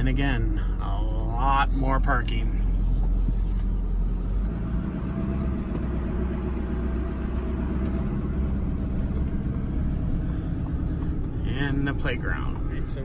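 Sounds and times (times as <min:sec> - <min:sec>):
truck engine and tyre rumble: 0:00.0 - 0:13.0.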